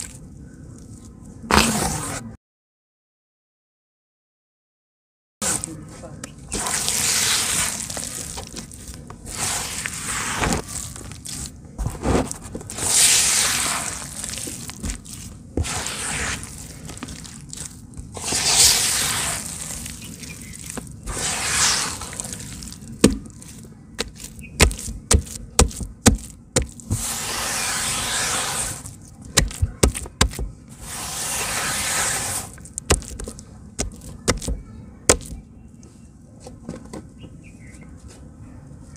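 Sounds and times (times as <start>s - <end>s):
hands squelching wet mud: 5.4s - 35.4s
sticky mud pops: 22.0s - 27.1s, 29.3s - 30.6s, 32.6s - 35.4s.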